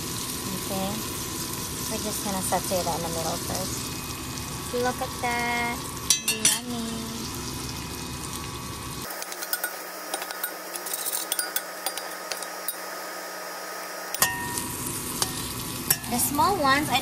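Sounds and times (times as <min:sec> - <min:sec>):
food sizzling in a pan: 0:00.0 - 0:17.0
metal spoon scraping a pan: 0:09.1 - 0:12.9.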